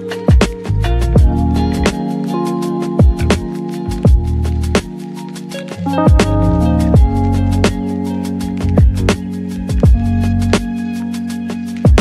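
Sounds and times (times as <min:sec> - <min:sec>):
held bass and keyboard notes: 0:00.0 - 0:12.0
deep kick drums: 0:01.2 - 0:01.6, 0:03.0 - 0:04.5, 0:06.1 - 0:07.8, 0:08.6 - 0:10.2.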